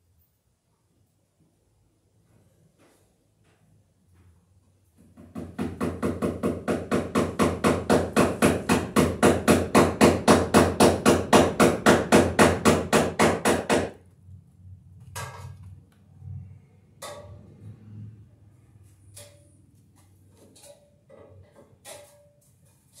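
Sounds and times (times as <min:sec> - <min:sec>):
hammer tapping rapidly: 0:05.2 - 0:14.0.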